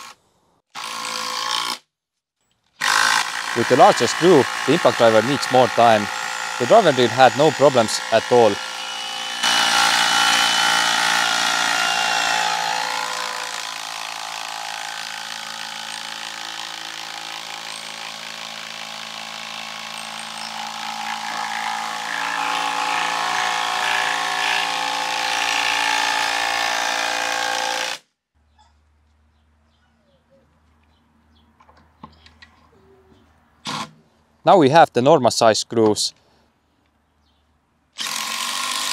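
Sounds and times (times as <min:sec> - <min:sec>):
impact driver hammering screw into wood: 0:02.8 - 0:23.4.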